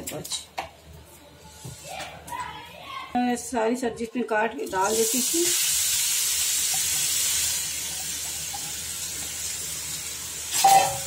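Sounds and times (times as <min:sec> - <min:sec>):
vegetables sizzling in hot oil: 0:04.6 - 0:11.0.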